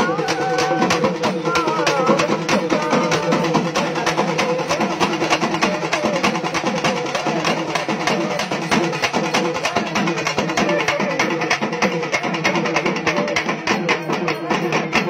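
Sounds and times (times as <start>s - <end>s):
drum ensemble playing fast: 0.0s - 15.0s.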